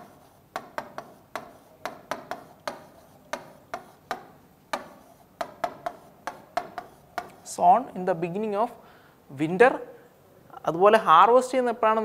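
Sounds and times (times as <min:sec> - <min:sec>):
marker pen writing on whiteboard: 0:00.0 - 0:07.8.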